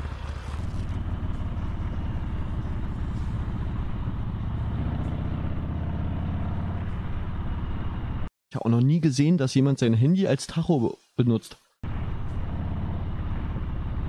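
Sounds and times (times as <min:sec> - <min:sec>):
motorcycle engine running: 0:00.0 - 0:08.3.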